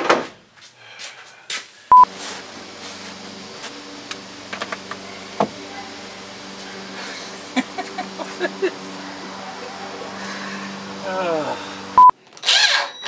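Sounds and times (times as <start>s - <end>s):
steady low hum: 1.9s - 12.2s
censor bleep: 12.0s - 12.2s.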